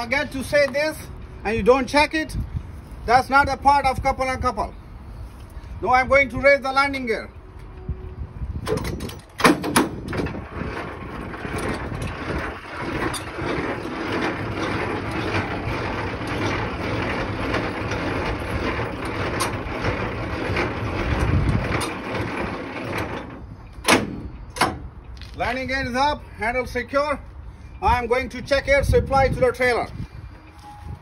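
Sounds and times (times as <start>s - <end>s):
crank grinding rattle: 8.7s - 25.4s.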